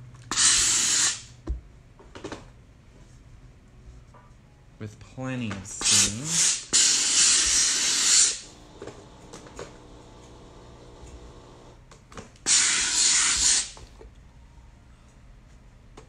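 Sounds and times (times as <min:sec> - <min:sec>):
steam iron hissing: 0:00.3 - 0:01.3, 0:05.8 - 0:11.8, 0:12.5 - 0:13.9.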